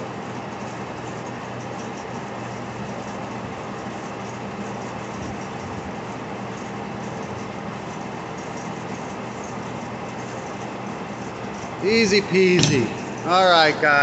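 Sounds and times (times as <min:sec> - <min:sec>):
machine hum: 0:01.9 - 0:14.0.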